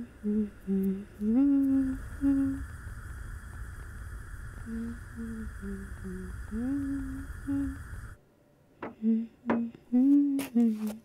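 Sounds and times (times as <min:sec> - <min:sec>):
person humming: 0:00.0 - 0:02.8, 0:04.6 - 0:08.2, 0:08.8 - 0:11.0
steady hiss: 0:00.0 - 0:08.2.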